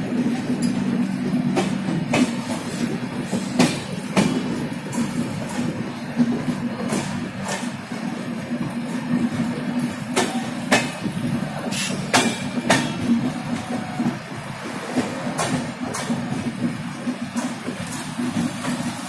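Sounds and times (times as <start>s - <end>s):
train wheels rumbling on rails: 0.0s - 19.0s
wheels clacking over rail joints: 0.0s - 19.0s.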